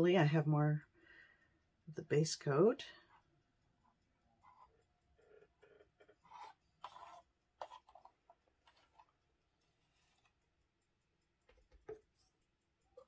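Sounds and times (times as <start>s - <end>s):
stick scraping paint cup: 4.4s - 10.4s.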